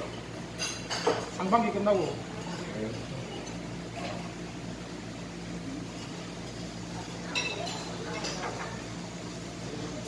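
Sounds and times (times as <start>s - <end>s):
tableware clinking: 0.0s - 4.4s, 5.9s - 8.8s.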